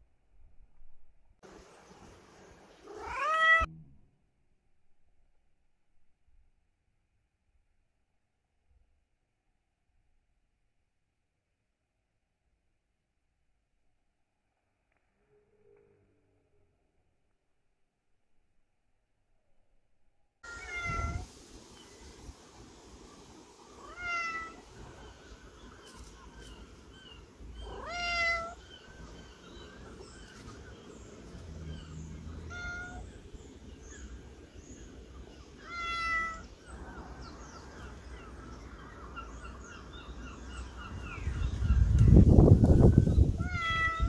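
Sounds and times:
cat meowing: 0:02.8 - 0:03.7, 0:20.4 - 0:21.3, 0:23.8 - 0:24.7, 0:27.6 - 0:28.6, 0:32.4 - 0:33.2, 0:35.6 - 0:36.5, 0:43.4 - 0:44.0.

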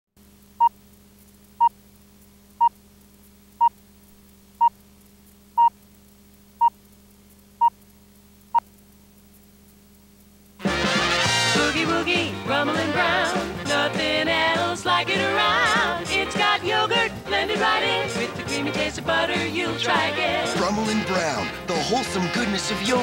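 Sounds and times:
faint low hum: 0:00.2 - 0:10.6
swing music with brass: 0:10.6 - 0:23.0.

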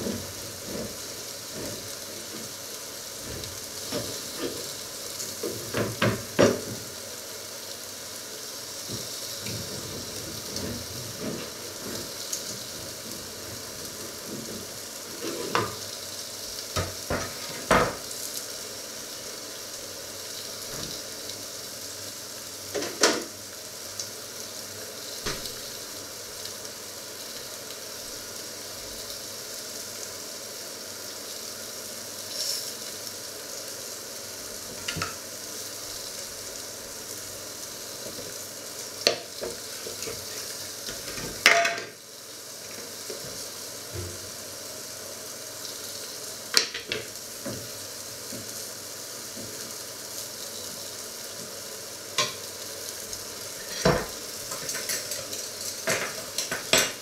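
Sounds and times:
food sizzling in grill pan: 0:00.0 - 0:57.0.

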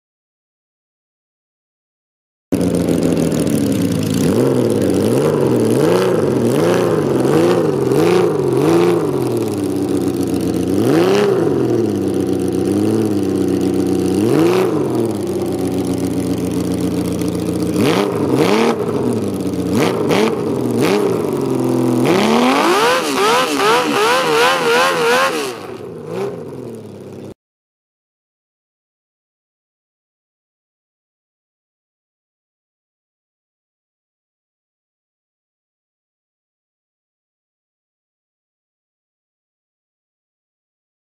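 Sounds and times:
motorcycle engine revving: 0:02.5 - 0:27.4.

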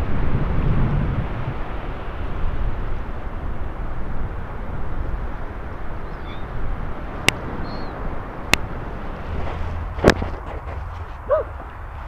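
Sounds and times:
wind on microphone: 0:00.0 - 0:12.0
faint gull calls: 0:06.1 - 0:06.5, 0:07.6 - 0:08.0.

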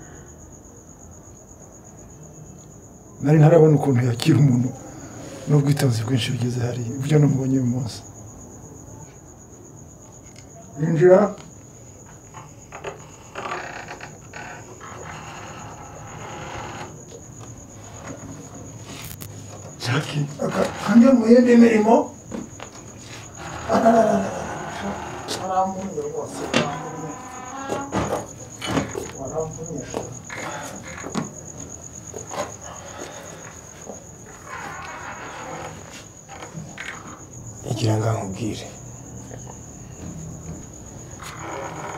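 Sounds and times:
cricket chirping: 0:00.0 - 0:41.9.

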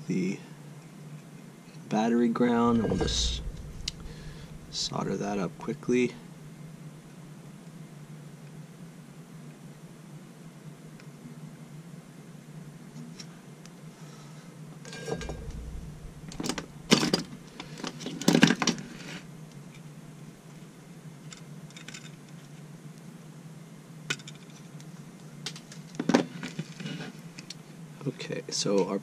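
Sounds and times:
faint steady hum: 0:01.9 - 0:07.4, 0:13.9 - 0:18.1.

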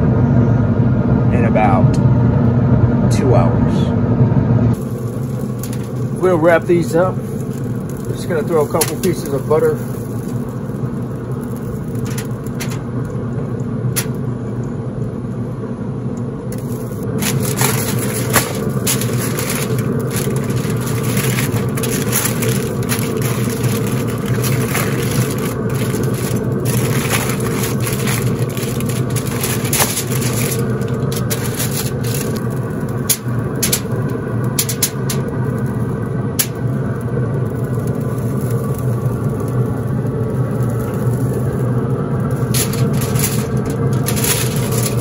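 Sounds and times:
grill humming: 0:00.0 - 0:45.0
aluminium foil crinkling: 0:04.7 - 0:13.1, 0:13.9 - 0:14.2, 0:16.5 - 0:45.0.

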